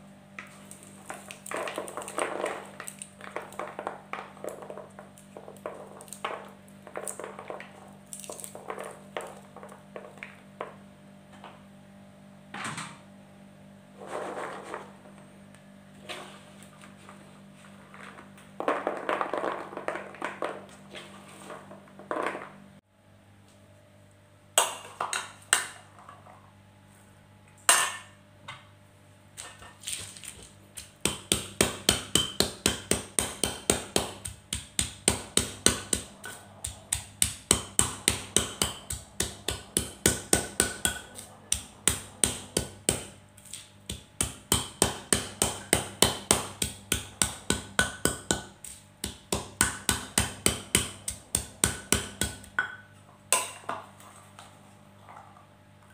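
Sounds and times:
berries rattling in plastic colander: 0:17.9 - 0:20.7
stone pestle pounding in mortar: 0:31.0 - 0:43.2, 0:43.9 - 0:52.7.

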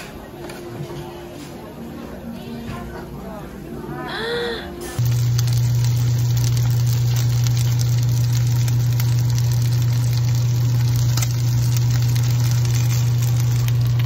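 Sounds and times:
loud low hum: 0:04.9 - 0:14.0
pancake batter sizzling in a pan: 0:05.0 - 0:14.0.

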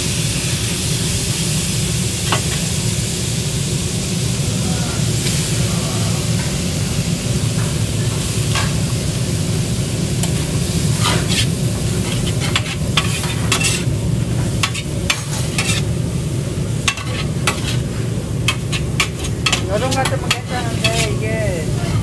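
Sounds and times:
food sizzling on griddle: 0:00.0 - 0:22.0
metal spatulas scraping: 0:11.0 - 0:13.9, 0:14.6 - 0:15.9, 0:16.8 - 0:17.9, 0:18.5 - 0:21.2.

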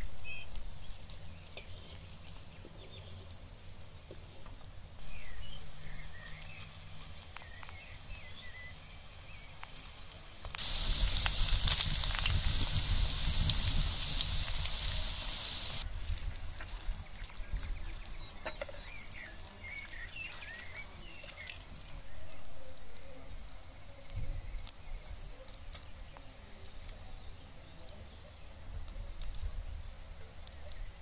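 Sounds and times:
small birds chirping: 0:00.0 - 0:04.4, 0:05.0 - 0:15.9, 0:16.5 - 0:31.0
meat sizzling in hot oil: 0:05.0 - 0:21.9.

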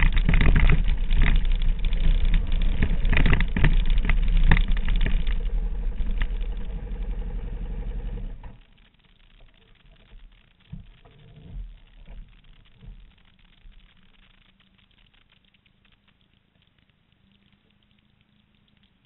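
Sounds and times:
motorcycle engine idling: 0:02.7 - 0:08.6.

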